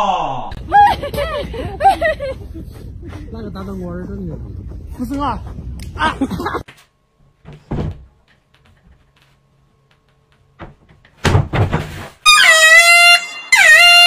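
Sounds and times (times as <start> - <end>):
thuds against wooden wardrobe door: 7.4 - 8.1, 10.6 - 11.9.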